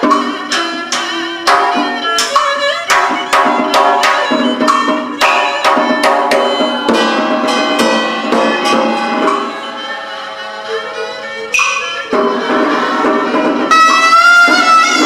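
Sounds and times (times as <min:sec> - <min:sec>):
sharp drum strokes: 0:00.0 - 0:09.7
two-string fiddle melody: 0:00.0 - 0:15.0.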